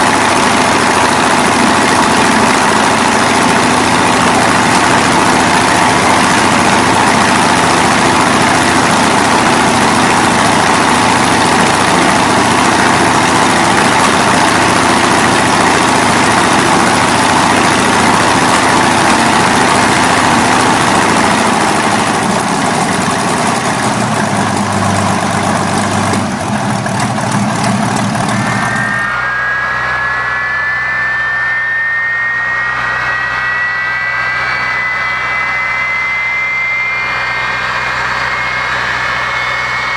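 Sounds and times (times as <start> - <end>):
piston aircraft engine running: 0.0 - 39.9
turbofan starting up whine: 0.0 - 39.9.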